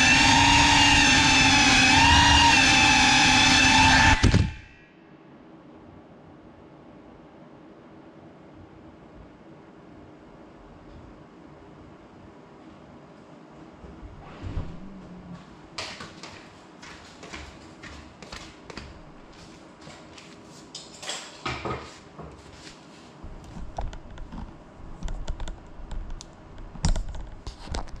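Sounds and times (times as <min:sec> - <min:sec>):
low rumble: 0:13.8 - 0:15.8.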